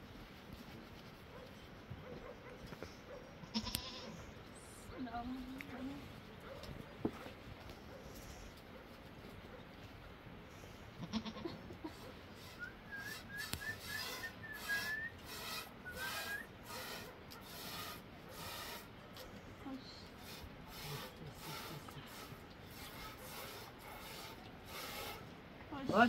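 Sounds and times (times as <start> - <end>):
goat call: 11.0 - 17.8.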